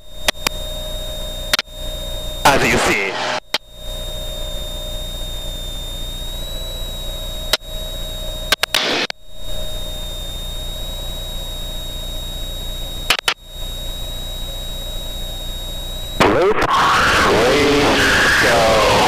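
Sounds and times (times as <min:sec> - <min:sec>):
electronic hum with high whine: 0:00.0 - 0:19.0
burst of static: 0:02.4 - 0:03.6, 0:08.6 - 0:09.1, 0:16.2 - 0:19.0
intercom clicks: 0:13.1 - 0:13.4.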